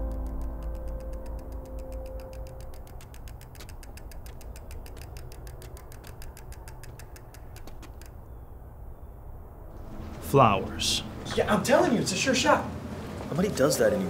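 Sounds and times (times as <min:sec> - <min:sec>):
bicycle freewheel ticking: 0:00.0 - 0:08.1.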